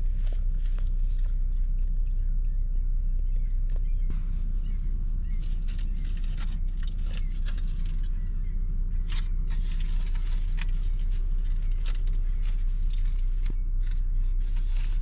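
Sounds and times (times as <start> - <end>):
car cabin idling rumble: 0.0 - 15.0
light clicks and rattles: 5.3 - 15.0.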